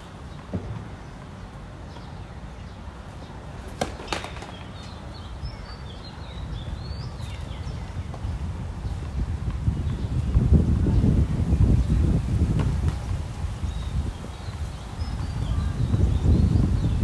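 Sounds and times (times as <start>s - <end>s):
tennis ball knocks: 3.6s - 5.0s.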